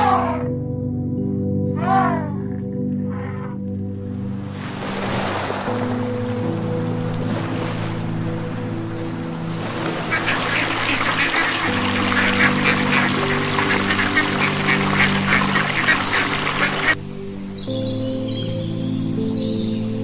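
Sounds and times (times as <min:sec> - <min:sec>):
background music: 0:00.0 - 0:20.0
splashing on water: 0:09.7 - 0:17.0
ducks quacking: 0:10.1 - 0:17.0.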